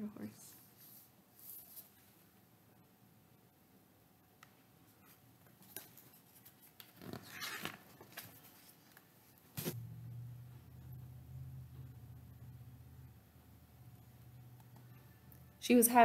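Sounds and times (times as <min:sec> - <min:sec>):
low steady hum: 0:08.0 - 0:16.0.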